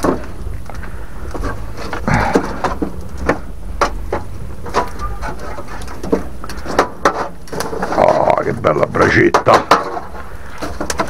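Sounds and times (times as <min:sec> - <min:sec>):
fire low rumble: 0:00.0 - 0:11.0
wood fire crackling: 0:00.0 - 0:11.0.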